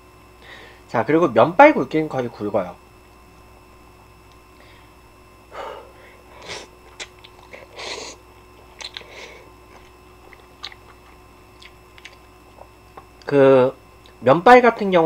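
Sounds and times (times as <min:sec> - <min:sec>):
chewing with mouth clicks: 0:06.9 - 0:07.7, 0:08.6 - 0:13.3.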